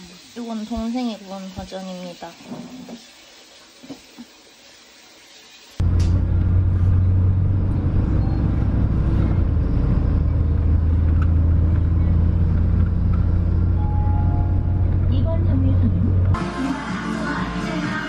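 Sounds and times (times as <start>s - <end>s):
bus engine and road noise: 5.8s - 16.4s.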